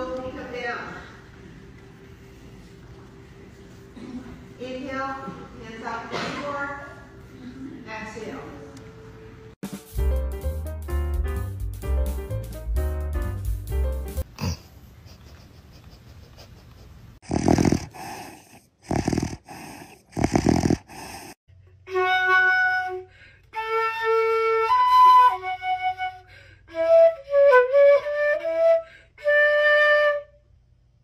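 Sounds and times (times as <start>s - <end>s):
flute playing slow melody: 21.8s - 30.6s.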